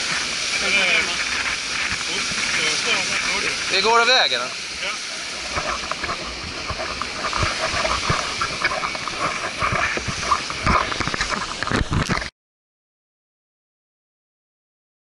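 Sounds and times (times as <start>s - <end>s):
breaking surf: 0.0s - 12.3s
wind: 0.0s - 12.3s
camera being jostled: 5.5s - 12.3s.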